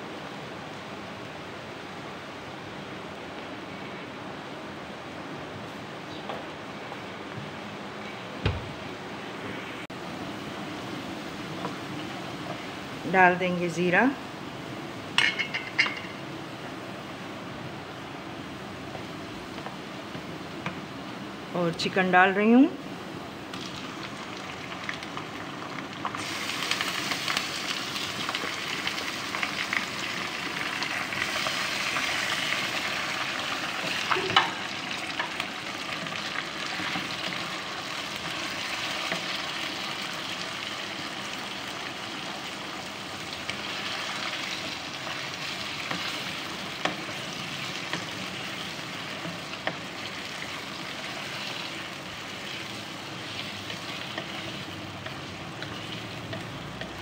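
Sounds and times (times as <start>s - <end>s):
chicken sizzling in hot oil: 23.3s - 57.0s.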